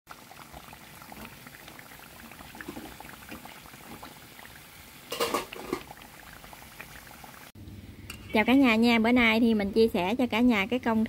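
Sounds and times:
fritters sizzling in hot oil: 0.1s - 8.6s
chopsticks stirring in frying oil: 1.0s - 6.0s.

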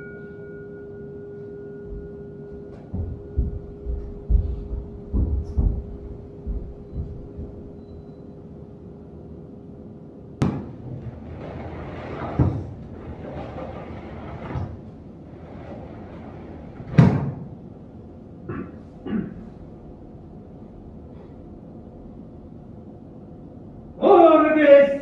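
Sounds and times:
soft thuds: 2.7s - 7.8s
sharp knocks: 2.8s - 7.8s, 10.4s - 13.8s.

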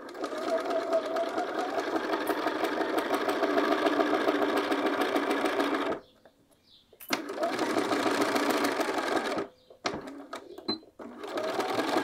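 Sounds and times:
sewing machine running: 0.0s - 6.0s, 7.1s - 9.5s, 11.0s - 12.0s.

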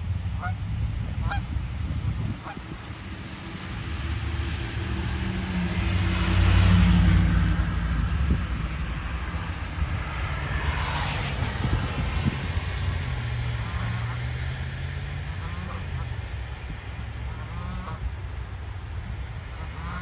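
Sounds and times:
steady low rumble: 0.0s - 6.4s
geese honking: 0.4s - 0.6s, 1.2s - 1.5s, 2.4s - 2.6s, 13.6s - 14.2s, 15.3s - 16.2s, 17.2s - 18.0s, 19.5s - 20.0s
vehicle driving past: 1.2s - 18.1s.

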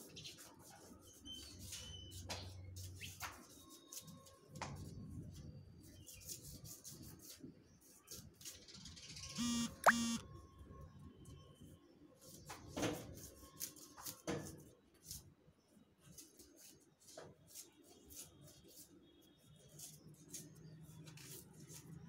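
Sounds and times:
sharp rising chirp: 9.4s - 10.2s
short buzzy beeps: 9.4s - 10.2s.

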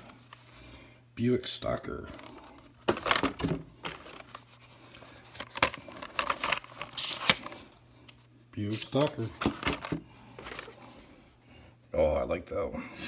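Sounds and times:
cardboard and plastic rustling: 2.0s - 11.2s.

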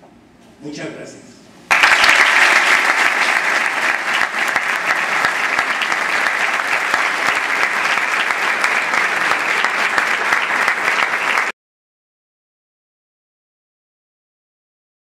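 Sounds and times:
audience applauding: 1.7s - 11.5s.

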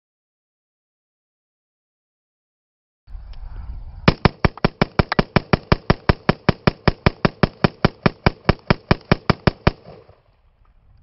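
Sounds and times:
rifle shots fired rapidly: 4.1s - 10.2s.

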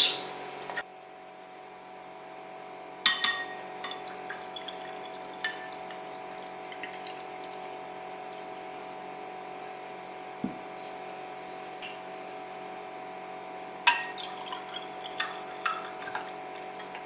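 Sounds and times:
glass clink: 3.0s - 5.8s, 13.9s - 16.3s
drink pouring into glass: 3.4s - 8.9s, 13.9s - 17.0s.

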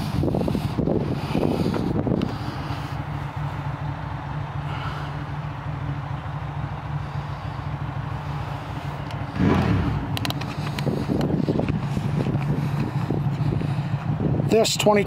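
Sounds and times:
engine idling: 0.0s - 15.0s
sharp clicks: 9.0s - 11.8s
loud rush: 9.2s - 10.7s.

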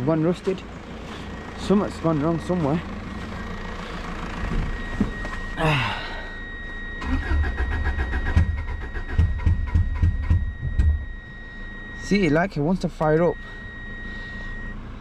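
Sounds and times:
engine cranking and sputtering: 7.0s - 11.0s.

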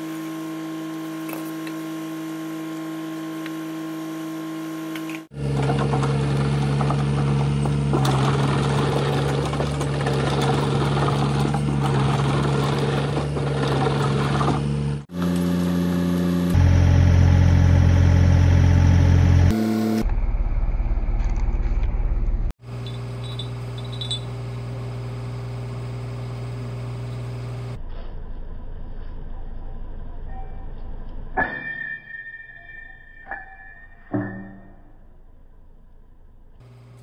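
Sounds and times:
excavator diesel engine running: 16.6s - 23.4s.

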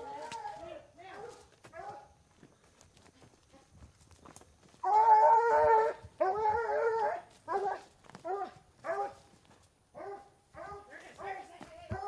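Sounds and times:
dog howling: 4.8s - 9.2s.

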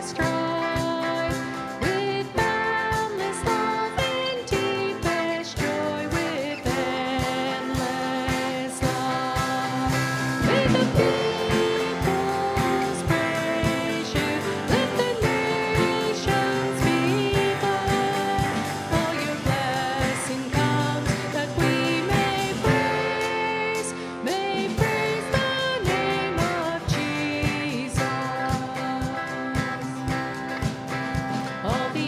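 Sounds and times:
drum kit beat: 0.0s - 32.0s
worship band playing a hymn: 0.0s - 32.0s
man singing: 6.7s - 29.6s.

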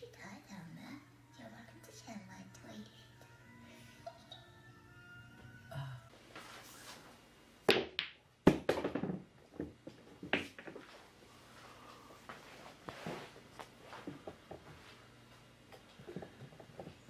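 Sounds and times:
pool balls clacking together: 7.7s - 11.0s.

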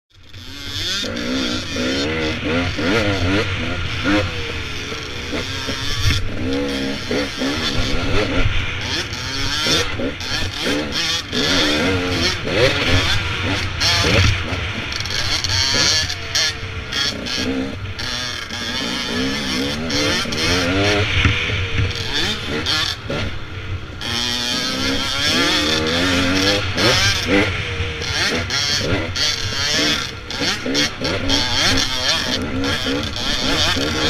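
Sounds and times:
dirt bike engine revving: 0.1s - 34.0s.

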